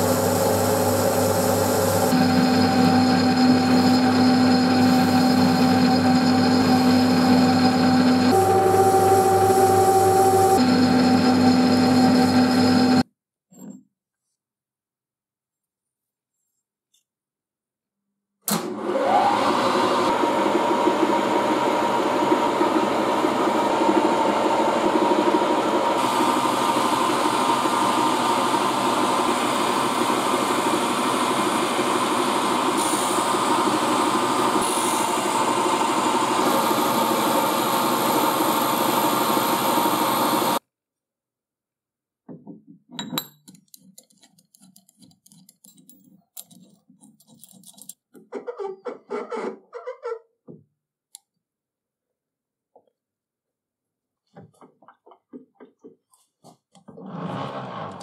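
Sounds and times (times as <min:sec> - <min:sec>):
milling machine cutting metal: 0:00.1 - 0:13.0.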